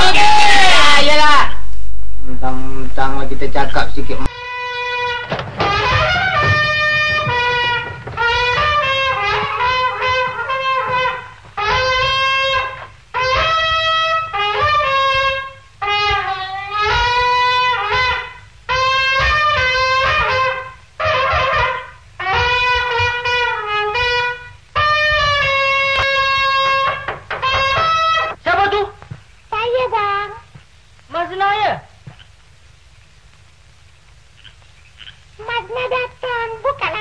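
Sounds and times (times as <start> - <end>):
low hum: 0.0 - 4.3
solo wind instrument melody: 4.3 - 28.4.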